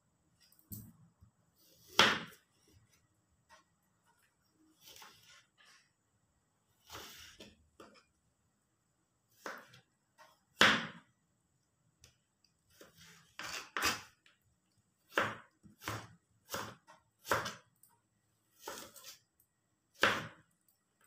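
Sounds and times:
knife chopping on cutting board: 0:01.8 - 0:02.4, 0:09.4 - 0:09.8, 0:10.6 - 0:11.0, 0:12.8 - 0:14.1, 0:15.1 - 0:17.6, 0:18.6 - 0:19.2, 0:20.0 - 0:20.4.

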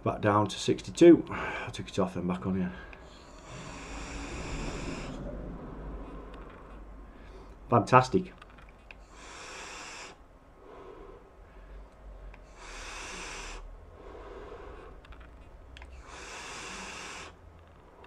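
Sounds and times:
soft breaths: 0:00.7 - 0:18.0
person exhaling vapour: 0:02.9 - 0:07.5, 0:09.0 - 0:11.2, 0:12.5 - 0:15.0, 0:16.0 - 0:17.4.

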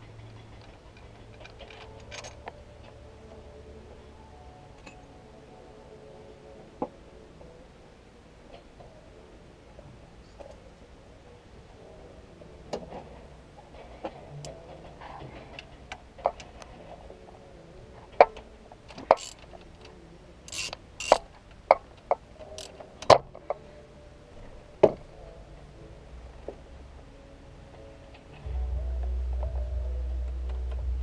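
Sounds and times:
ratchet wrench clicking: 0:19.0 - 0:19.5, 0:20.5 - 0:21.3.

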